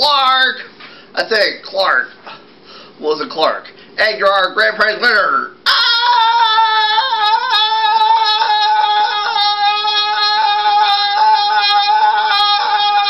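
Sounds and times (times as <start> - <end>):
person screaming: 5.7 - 13.0.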